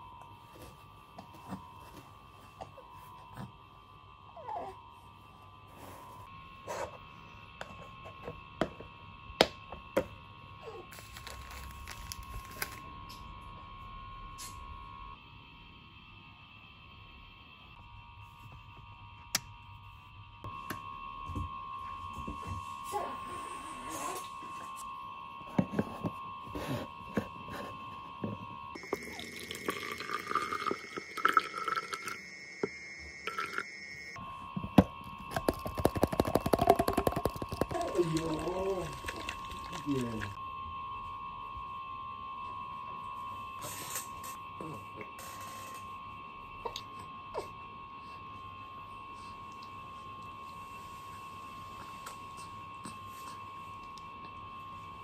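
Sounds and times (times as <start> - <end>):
faint high whine: 0.0 - 55.0
faint steady hum: 0.0 - 55.0
milk pouring into plastic bottle: 28.8 - 32.2, 35.4 - 40.3
plastic bottles clicking and knocking: 35.4 - 37.8.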